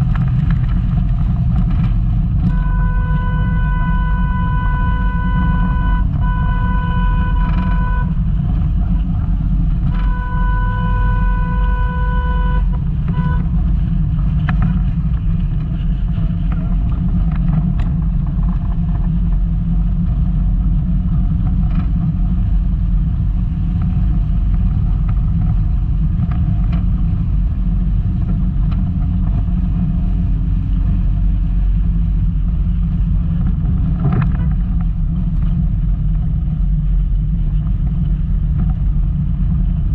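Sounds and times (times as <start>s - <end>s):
car engine and running gear rumbling: 0.0s - 39.9s
steady high tone: 2.5s - 8.1s, 10.0s - 13.4s.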